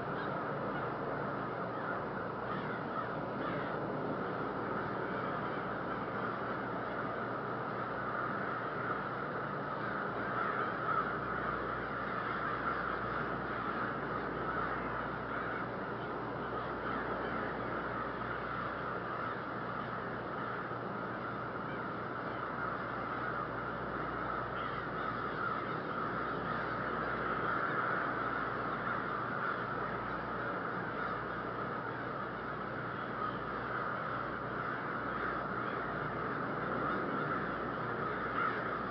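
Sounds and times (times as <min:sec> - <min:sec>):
crows cawing: 0:00.0 - 0:38.9.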